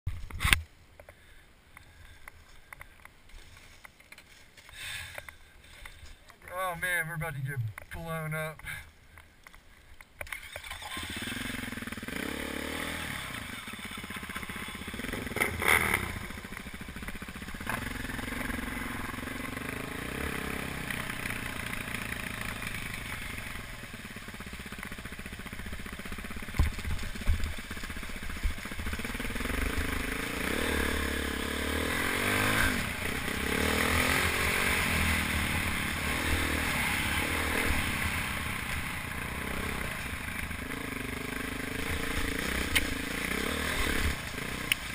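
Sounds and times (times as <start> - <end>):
dirt bike engine revving: 10.3 - 44.9.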